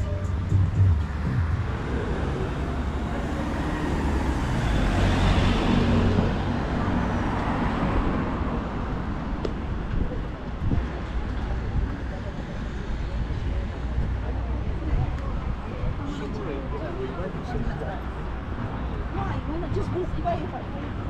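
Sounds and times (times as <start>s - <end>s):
traffic rumble: 0.0s - 21.0s
vehicle passing close by: 1.0s - 8.9s.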